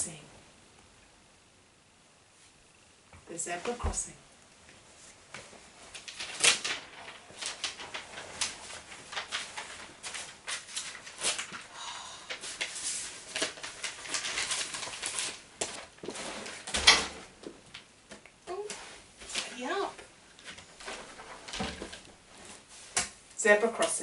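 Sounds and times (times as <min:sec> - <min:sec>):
cloth sheet rustling and crinkling: 0:04.7 - 0:11.7, 0:12.4 - 0:16.8, 0:18.7 - 0:23.0.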